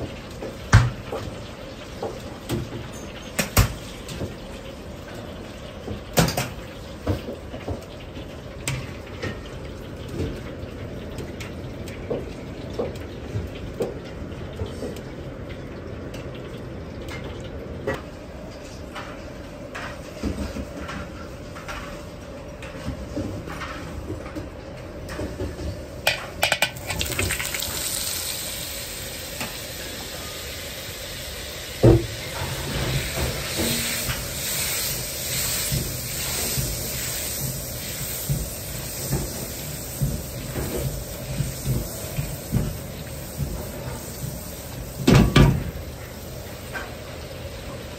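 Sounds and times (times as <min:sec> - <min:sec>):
kitchen clicks and knocks: 0:26.1 - 0:27.5
butter sizzling in a wok: 0:26.1 - 0:47.9
butter spattering crackles: 0:26.7 - 0:28.5.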